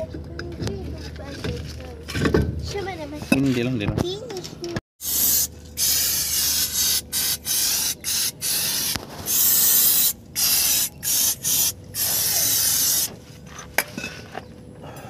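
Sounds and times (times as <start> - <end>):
aerosol spray can hissing: 5.0 - 13.1.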